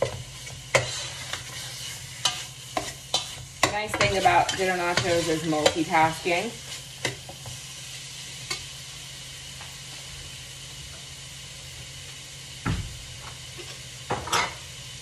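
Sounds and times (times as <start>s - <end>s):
meat sizzling in frying pan: 0.0s - 15.0s
heavy thump: 12.6s - 13.1s.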